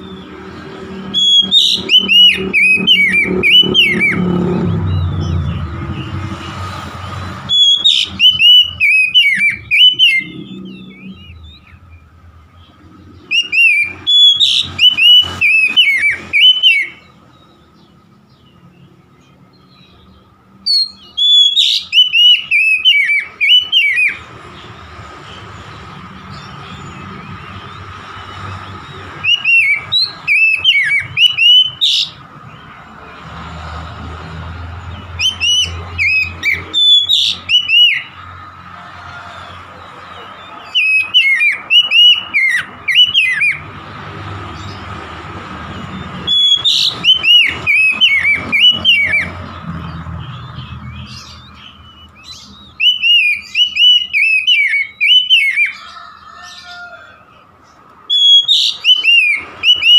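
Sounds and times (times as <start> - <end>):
bird singing whistled notes: 0.0 - 24.7, 28.8 - 32.7, 34.9 - 38.2, 40.3 - 43.7, 45.7 - 55.9, 58.1 - 59.9.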